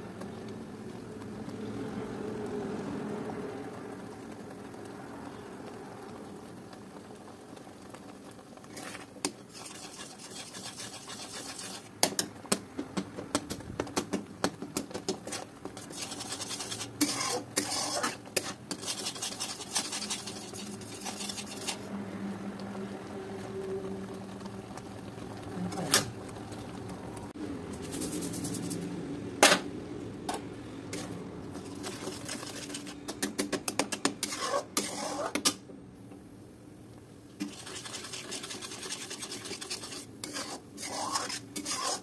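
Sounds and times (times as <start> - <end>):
spatula scraping a steel pot: 8.7 - 12.3, 15.1 - 21.9, 30.9 - 35.6, 37.4 - 42.0
sharp taps on pot: 12.0 - 15.2, 33.0 - 34.3.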